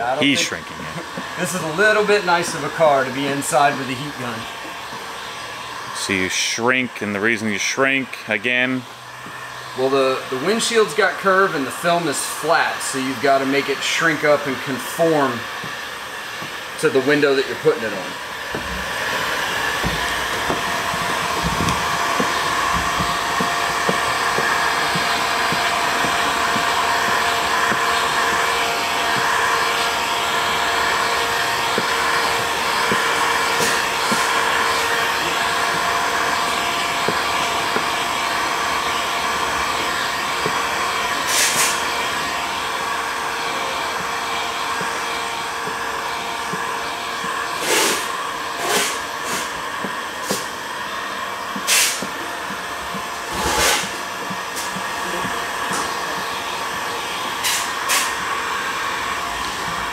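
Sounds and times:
heat gun blowing: 0:00.0 - 0:59.9
short sharp hisses: 0:41.3 - 0:41.8, 0:47.6 - 0:49.5, 0:51.7 - 0:52.0.

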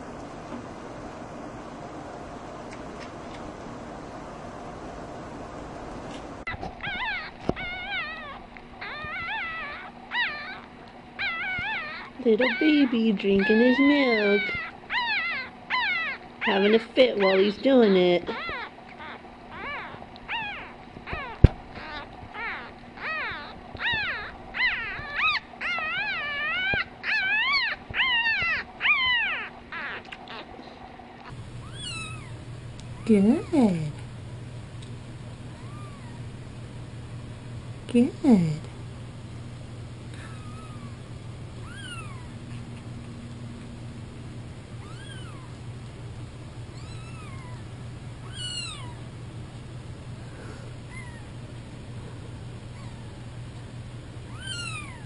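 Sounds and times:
puppy whimpering: 0:06.5 - 0:32.3, 0:35.6 - 0:36.2, 0:40.2 - 0:41.0, 0:41.6 - 0:42.9, 0:44.8 - 0:45.6, 0:46.7 - 0:49.1, 0:50.9 - 0:51.4, 0:52.7 - 0:53.2, 0:54.2 - 0:55.0.

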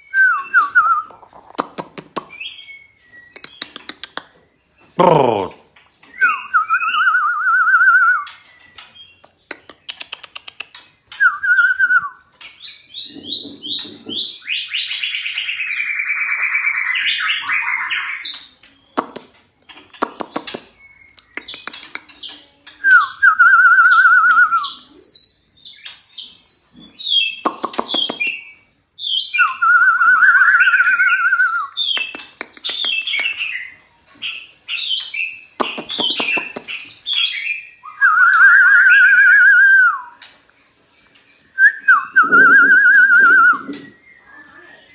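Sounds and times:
wavering trilled bird song: 0:02.2 - 0:19.0, 0:19.7 - 0:44.9
high short whistles: 0:41.7 - 0:43.9.

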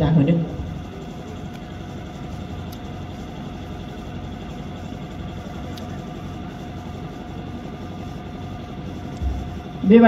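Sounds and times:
engine running: 0:00.2 - 0:10.0.

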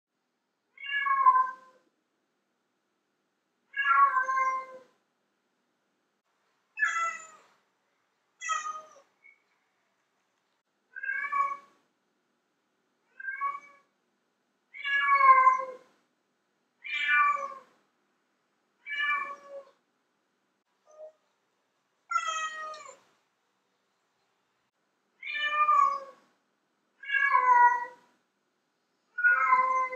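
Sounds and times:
cat meowing: 0:00.8 - 0:01.8, 0:03.8 - 0:04.9, 0:06.8 - 0:07.5, 0:08.4 - 0:09.1, 0:11.0 - 0:11.8, 0:13.1 - 0:13.9, 0:14.8 - 0:15.9, 0:16.8 - 0:17.8, 0:18.8 - 0:19.8, 0:22.1 - 0:23.0, 0:25.2 - 0:26.2, 0:27.0 - 0:28.1, 0:29.2 - 0:29.9.

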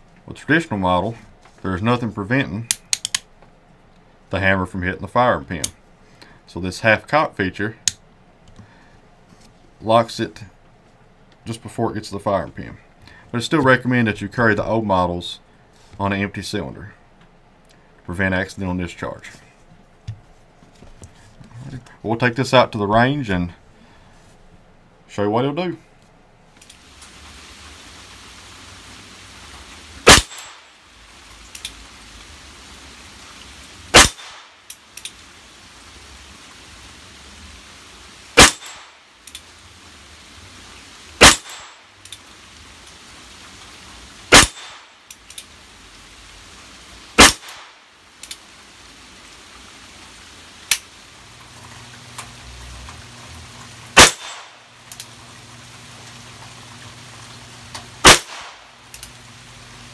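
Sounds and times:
revolver shots: 0:30.0 - 0:30.7, 0:33.9 - 0:34.5, 0:38.4 - 0:39.0, 0:41.2 - 0:41.8, 0:44.3 - 0:44.9, 0:54.0 - 0:54.6, 0:58.0 - 0:58.6.

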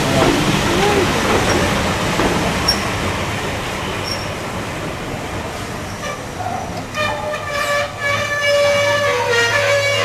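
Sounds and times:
train wheels rumbling: 0:00.0 - 0:10.0.

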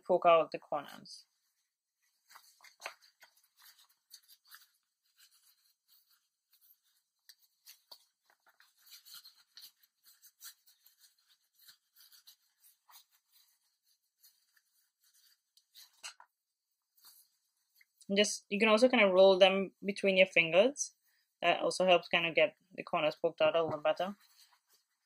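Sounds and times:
fabric rustling and scratching: 0:00.8 - 0:18.0, 0:23.2 - 0:25.0.

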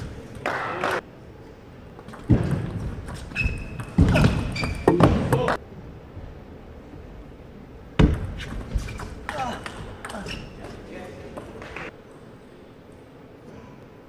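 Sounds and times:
shoe squeaks on floor: 0:03.2 - 0:05.1.

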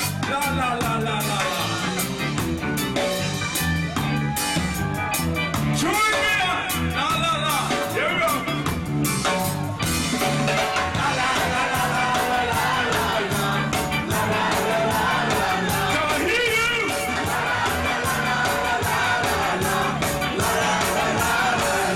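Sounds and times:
live ska band playing: 0:00.0 - 0:21.9
crowd shouting: 0:03.6 - 0:05.5, 0:10.7 - 0:21.9.

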